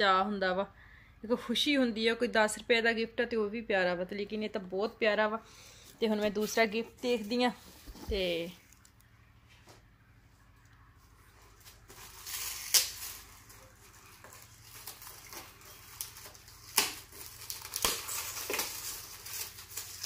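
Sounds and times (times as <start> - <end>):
wrapping paper rustling and tearing: 11.2 - 20.0.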